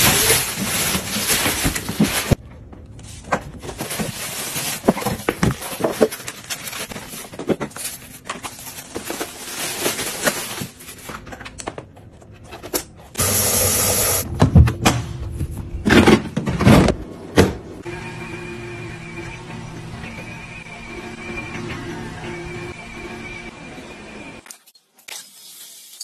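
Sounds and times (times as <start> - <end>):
plastic wrap rustling: 0.0 - 2.4, 3.1 - 11.7.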